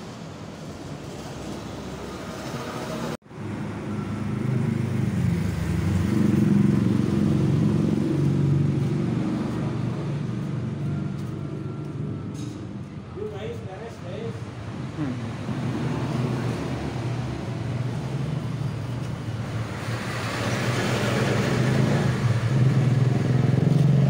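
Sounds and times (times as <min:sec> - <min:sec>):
vehicle engine low rumble: 0:03.3 - 0:24.0.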